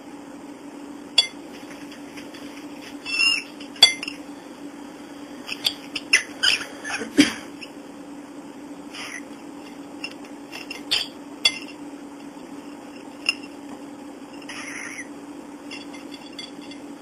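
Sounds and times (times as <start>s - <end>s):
bird squeak: 3.1s - 3.5s, 5.6s - 7.0s, 9.0s - 9.2s, 14.5s - 15.1s.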